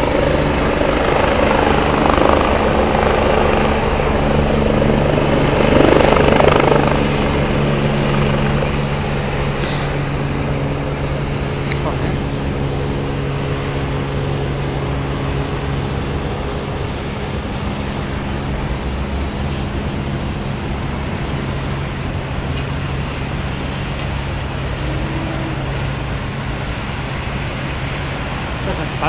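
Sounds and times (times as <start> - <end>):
propeller aircraft engine drone: 0.0 - 29.0
high-pitched hiss: 5.8 - 29.0.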